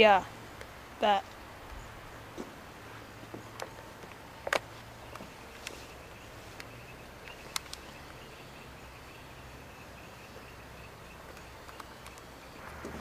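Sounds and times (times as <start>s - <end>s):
insect chirping: 3.4s - 13.0s
sharp clicks: 6.6s - 8.2s, 11.2s - 13.0s.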